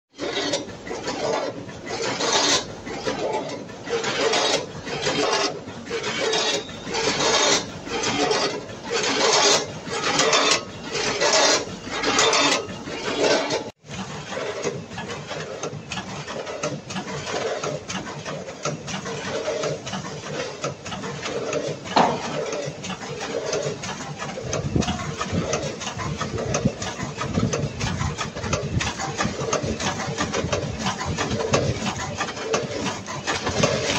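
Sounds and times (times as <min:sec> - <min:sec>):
bagging machine clatter: 0:00.2 - 0:33.9
weigher metallic clatter: 0:14.6 - 0:33.9.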